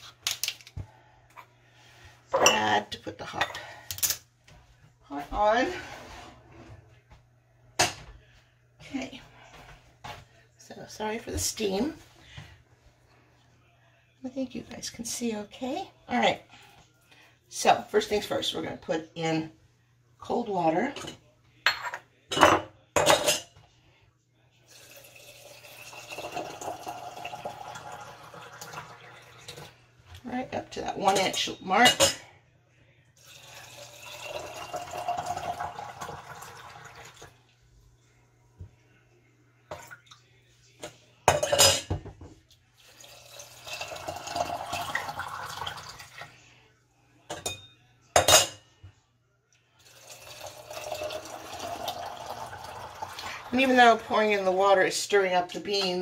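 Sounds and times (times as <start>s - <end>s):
water pouring into jar: 24.7s - 29.7s, 33.2s - 37.4s, 42.8s - 46.2s, 49.8s - 53.6s.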